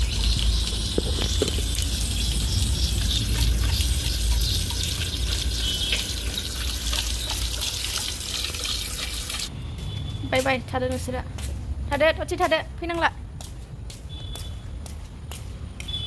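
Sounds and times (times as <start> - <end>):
tap water splashing on floor: 3.0 - 9.5.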